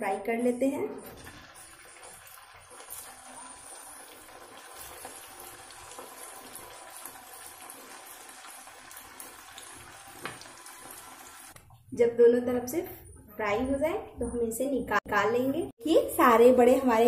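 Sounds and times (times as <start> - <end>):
deep-frying sizzle and crackle: 1.0 - 11.6.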